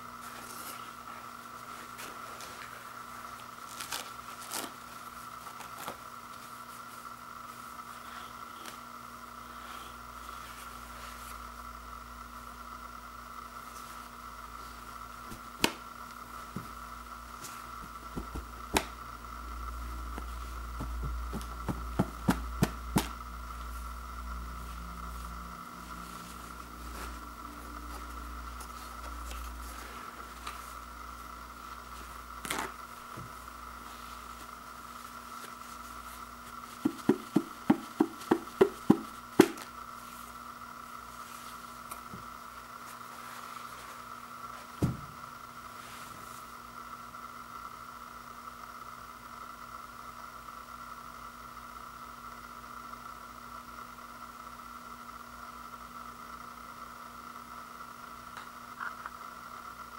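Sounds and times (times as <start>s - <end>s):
steady background hum: 0.0s - 59.9s
paper roll knocking on wooden floor: 36.8s - 39.6s.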